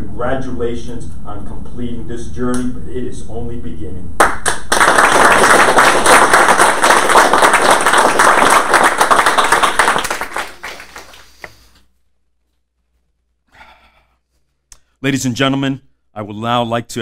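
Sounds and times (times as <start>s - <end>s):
audience applauding: 4.2s - 11.6s.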